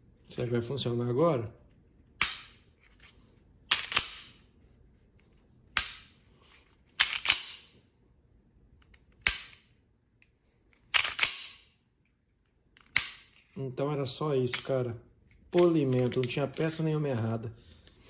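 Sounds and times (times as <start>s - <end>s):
pistol slide racking: 7.0s - 7.8s, 10.9s - 11.7s.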